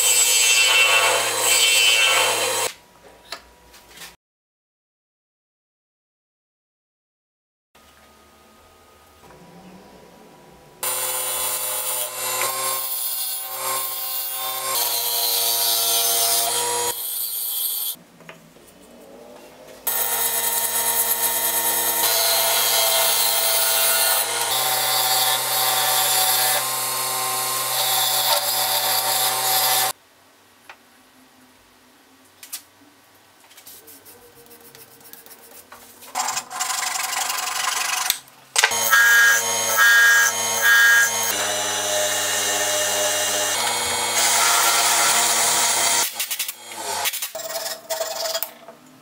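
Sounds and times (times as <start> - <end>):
sandpaper rubbing hiss: 33.5 - 36.0.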